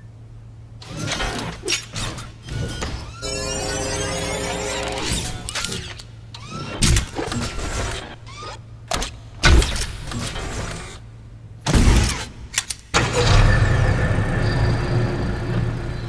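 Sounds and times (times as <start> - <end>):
robotic arms clicking: 0.8 - 11.0.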